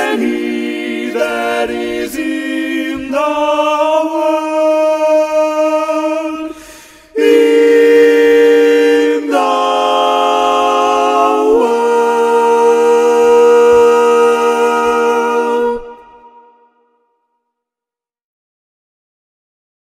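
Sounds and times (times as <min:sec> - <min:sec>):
vocal quartet singing: 0:00.0 - 0:16.8
short breath: 0:06.5 - 0:07.2.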